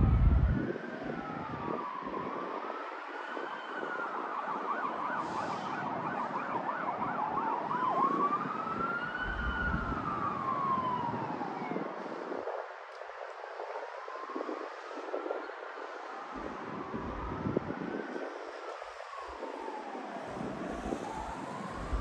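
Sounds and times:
emergency vehicle siren: 0:00.0 - 0:22.0
road noise hiss: 0:05.0 - 0:06.2, 0:18.1 - 0:22.0.

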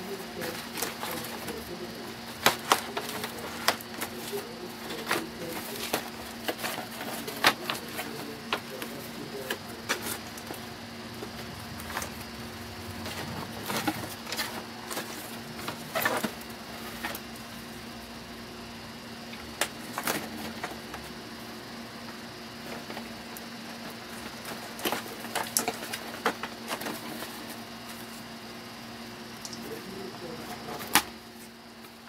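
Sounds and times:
cardboard and plastic crinkling: 0:00.0 - 0:17.2.

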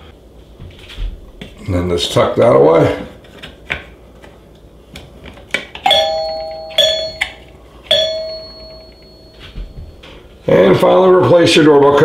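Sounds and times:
doorbell chime ringing: 0:05.8 - 0:10.3.

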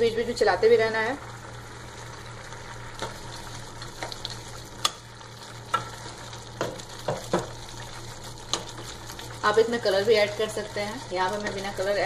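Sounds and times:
paste sizzling in a pot: 0:00.0 - 0:12.0
spatula scraping and knocking pot: 0:05.7 - 0:07.6.

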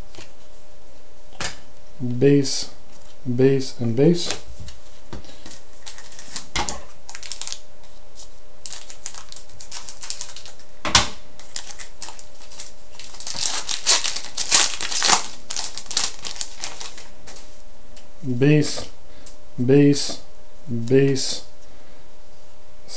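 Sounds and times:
foil wrapper crinkling: 0:05.3 - 0:10.7, 0:11.4 - 0:17.6.

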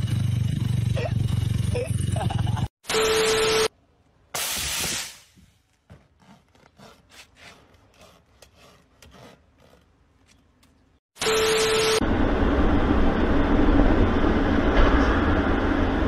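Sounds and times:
blade scraping rubber tyre: 0:05.6 - 0:10.5.

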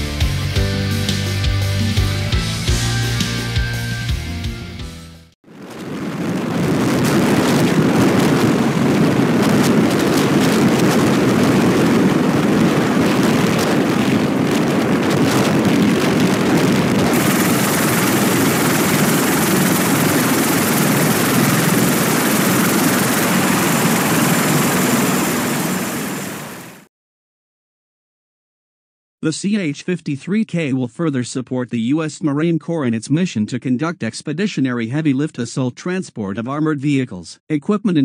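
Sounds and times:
helicopter rotor and turbine noise: 0:05.5 - 0:26.9.

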